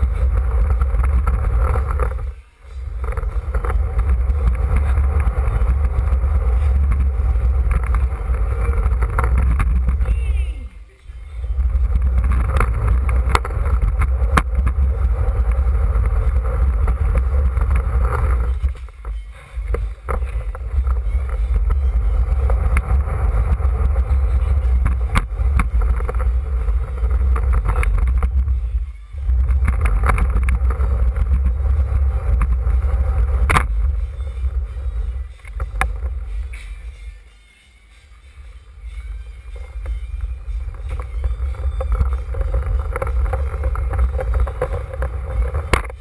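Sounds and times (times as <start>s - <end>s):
skateboard wheels rumbling on floor: 0.0s - 37.1s, 38.6s - 46.0s.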